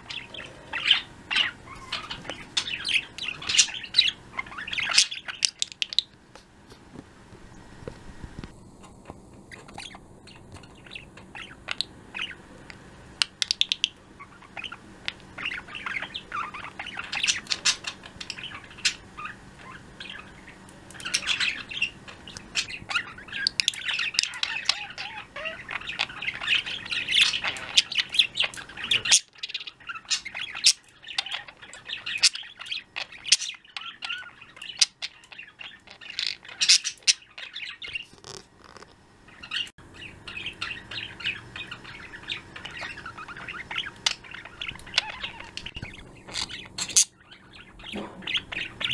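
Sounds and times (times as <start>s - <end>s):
budgerigars chirping and trilling: 0.0s - 6.2s, 9.0s - 12.5s, 13.2s - 48.9s
budgerigar squawks: 15.4s - 38.4s, 39.4s - 48.9s.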